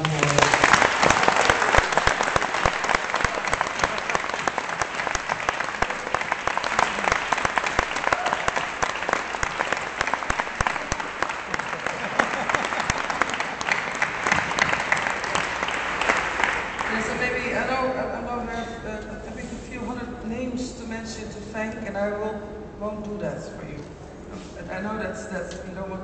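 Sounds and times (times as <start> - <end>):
audience applauding: 0.0 - 17.6.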